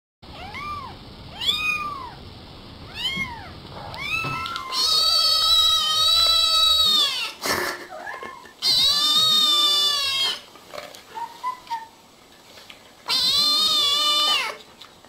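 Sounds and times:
cat meowing: 0.3s - 2.2s, 2.9s - 7.3s, 8.3s - 10.4s, 13.1s - 14.6s.

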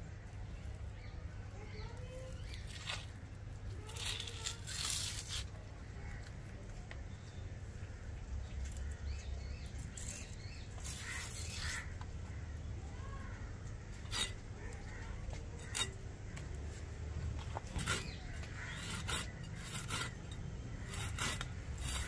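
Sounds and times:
birds chirping faintly: 0.0s - 22.0s
fish skin tearing: 2.5s - 5.6s.

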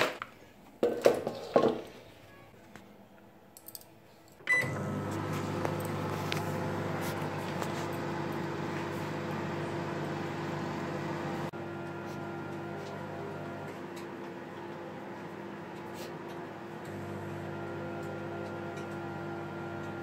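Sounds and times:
microwave short beep: 4.5s - 5.0s
microwave humming: 4.5s - 20.0s.

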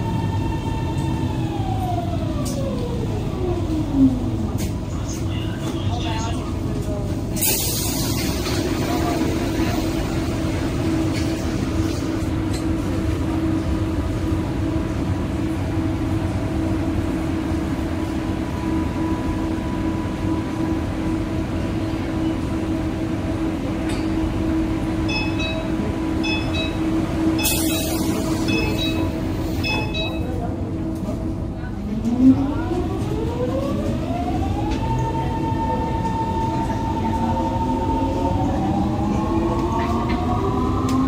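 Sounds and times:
metro car humming: 0.0s - 41.0s
short high door-warning beeps: 27.4s - 30.3s.

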